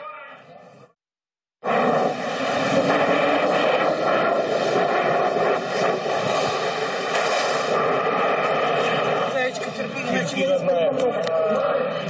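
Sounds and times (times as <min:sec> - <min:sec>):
loud rushing noise on platform: 0:01.6 - 0:12.0.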